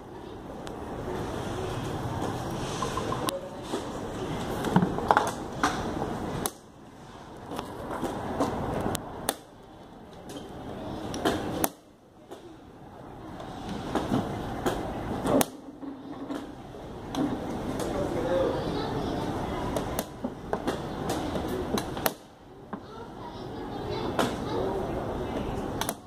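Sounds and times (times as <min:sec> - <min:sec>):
steady background noise: 0:00.0 - 0:26.0.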